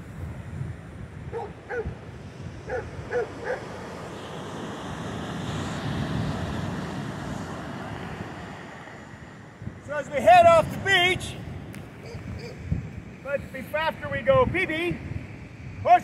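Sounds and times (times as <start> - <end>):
wind noise: 0.0 - 16.0
dog barking: 1.3 - 1.9, 2.7 - 3.7.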